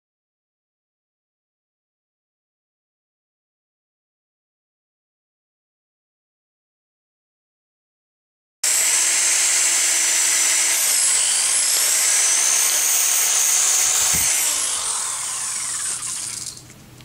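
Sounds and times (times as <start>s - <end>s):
electric drill whining: 8.6s - 16.7s.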